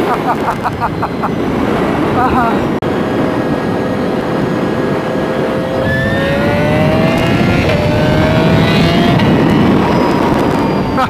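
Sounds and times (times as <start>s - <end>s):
wind and road noise: 0.0s - 11.0s
electric motor whine: 3.6s - 11.0s.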